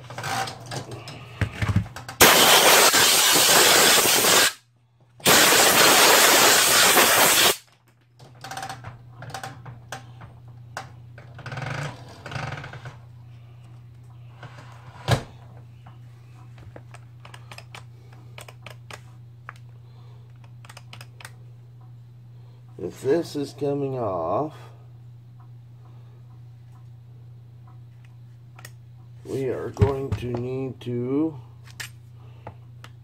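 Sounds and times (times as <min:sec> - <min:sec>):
steady low hum: 0:00.0 - 0:33.0
compressed air blow gun hiss: 0:02.2 - 0:04.6, 0:05.2 - 0:07.6
plastic parts clicking and rattling: 0:16.7 - 0:19.6.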